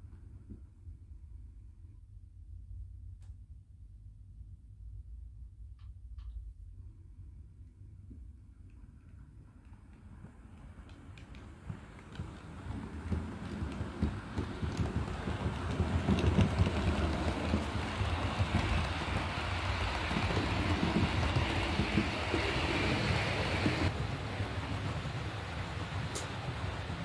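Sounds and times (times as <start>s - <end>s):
model train rumbling: 9.4s - 27.0s
wheels clicking over rail joints: 9.6s - 24.0s.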